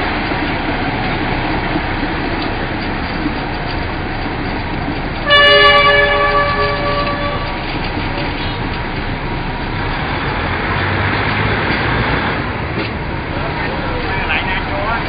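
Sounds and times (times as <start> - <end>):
train rumbling: 0.0 - 15.0
train horn blast: 5.2 - 8.6.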